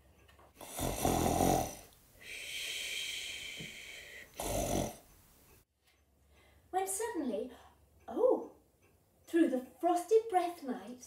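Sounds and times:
person imitating snoring: 0.6s - 1.9s, 3.3s - 5.0s.

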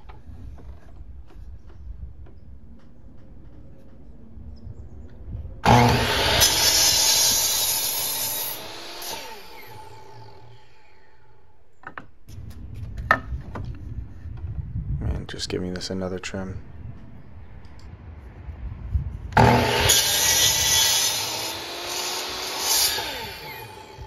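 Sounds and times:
miter saw cutting wood: 5.6s - 11.5s, 19.4s - 24.0s.

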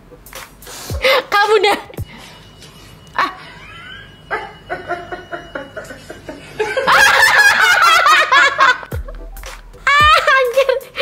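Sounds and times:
woman laughing: 1.0s - 2.0s, 3.2s - 9.0s, 9.8s - 11.0s.

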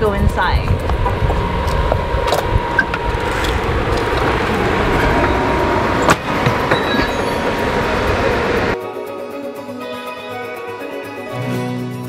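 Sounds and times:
street rumble: 0.0s - 8.8s
door shutting: 1.0s - 7.6s.

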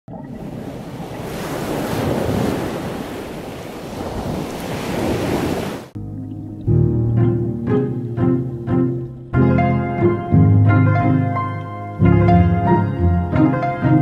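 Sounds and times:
ocean waves breaking: 0.1s - 6.0s
quiet string music: 6.0s - 14.0s.

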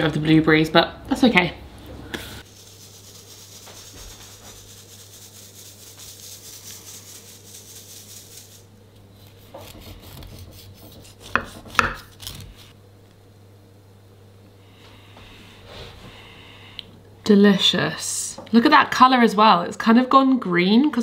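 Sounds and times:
icing sugar sifting patter: 2.4s - 9.5s.

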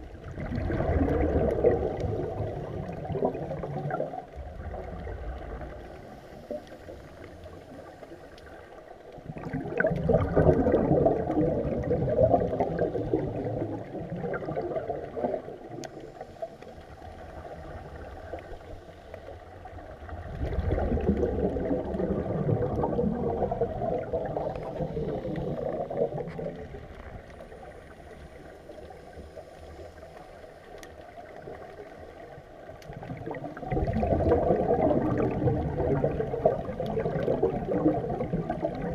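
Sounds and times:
underwater bubbles gurgling: 0.0s - 38.9s
underwater hiss: 4.8s - 8.8s, 9.4s - 32.4s.

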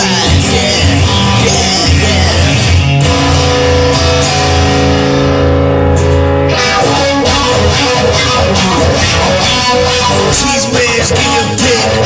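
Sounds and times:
rock song with electric guitar: 0.0s - 12.0s
guitar chord ringing: 1.9s - 10.8s.

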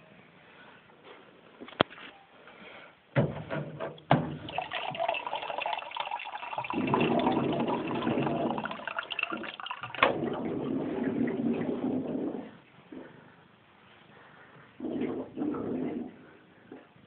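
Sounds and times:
water filling a bottle: 4.2s - 12.4s.

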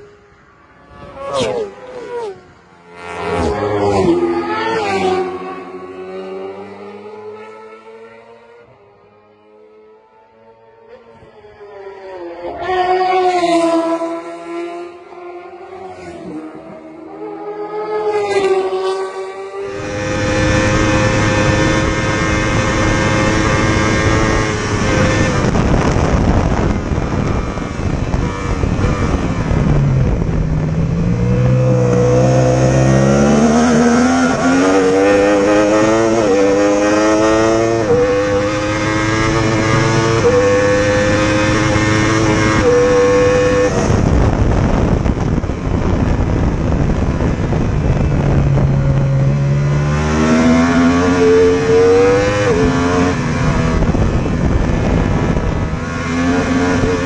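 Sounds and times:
racing motorcycle engine revving: 0.9s - 11.2s, 12.2s - 57.0s
wind rush: 19.6s - 57.0s.

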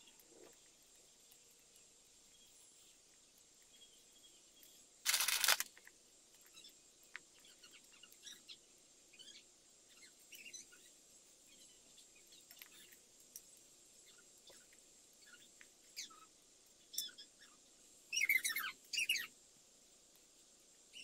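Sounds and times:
plastic pieces clattering: 5.1s - 5.7s
plastic toy pieces clicking: 5.1s - 5.8s.

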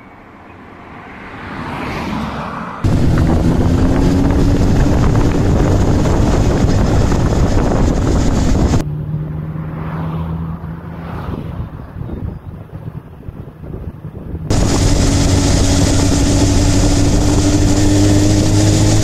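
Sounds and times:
wind rushing over microphone: 2.8s - 8.8s, 11.0s - 19.0s
motorcycle engine hum: 2.8s - 19.0s.

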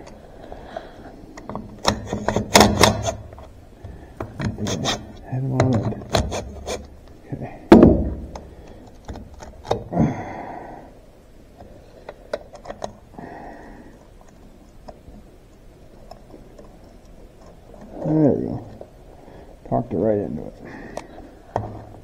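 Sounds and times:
heavy metal thunk: 7.7s - 8.4s.

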